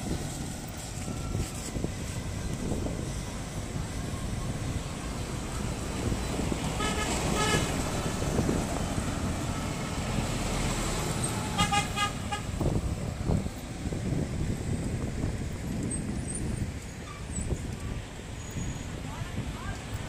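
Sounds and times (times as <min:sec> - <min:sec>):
traffic engine and tyre rumble: 0:00.0 - 0:20.0
vehicle horn beeps: 0:06.8 - 0:07.7, 0:11.5 - 0:12.6.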